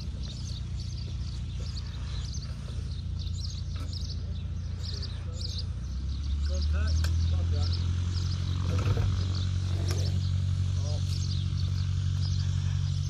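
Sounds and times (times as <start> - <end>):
low steady rumble: 0.0 - 13.0
small birds chirping: 0.0 - 13.0.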